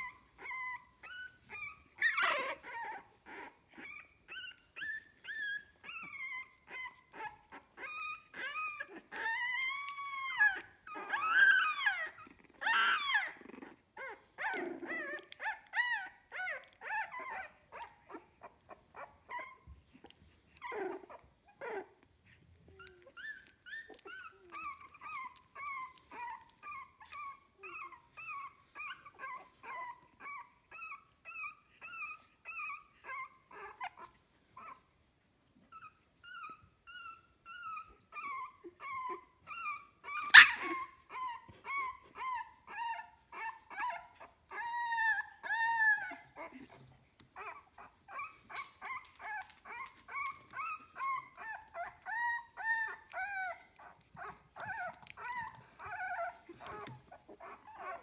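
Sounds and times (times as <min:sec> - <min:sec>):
puppies whimpering: 0:00.0 - 0:58.0.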